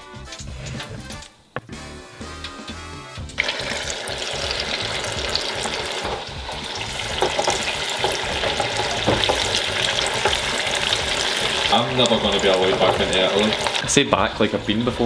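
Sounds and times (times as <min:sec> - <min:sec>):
background music: 0:00.0 - 0:15.0
deep fryer oil sizzling and popping: 0:03.2 - 0:15.0.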